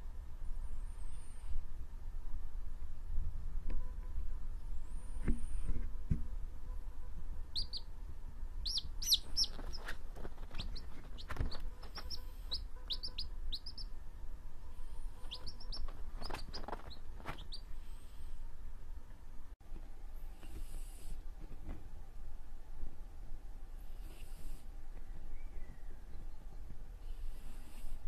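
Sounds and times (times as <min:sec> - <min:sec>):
chick peeping: 0:07.5 - 0:07.9, 0:08.6 - 0:13.9, 0:15.0 - 0:17.7.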